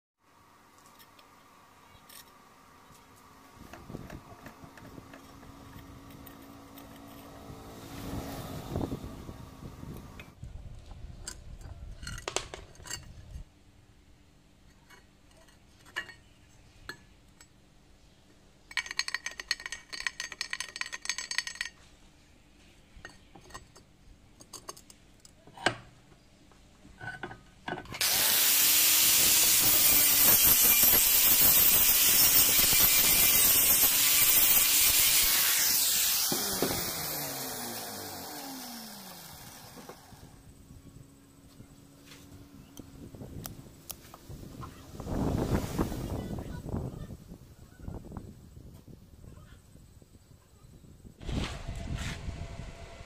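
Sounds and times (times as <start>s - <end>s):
angle grinder grinding steel: 28.0s - 40.6s.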